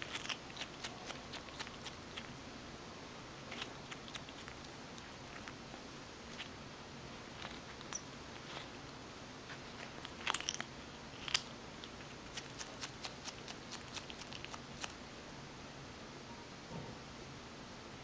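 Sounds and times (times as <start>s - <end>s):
skunk chewing with crunches and clicks: 0.0s - 2.5s, 3.4s - 15.0s.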